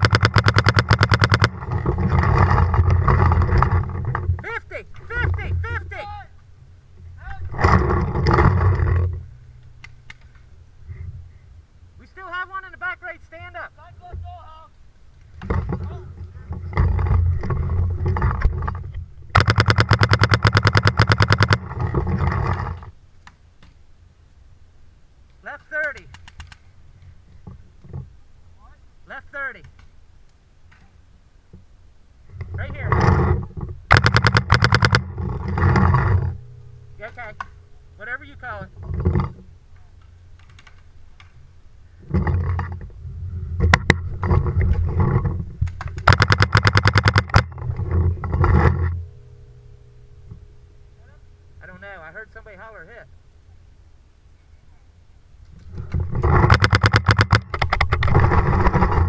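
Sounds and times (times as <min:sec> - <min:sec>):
paintball marker rapid shots: 0:00.0 - 0:01.6, 0:19.4 - 0:21.6, 0:33.9 - 0:35.0, 0:45.9 - 0:47.4, 0:56.5 - 0:57.6
rumbling movement and gear noise: 0:00.0 - 0:12.3, 0:13.3 - 0:23.0, 0:31.5 - 0:53.0, 0:55.4 - 0:59.0
rustling: 0:00.0 - 0:59.0.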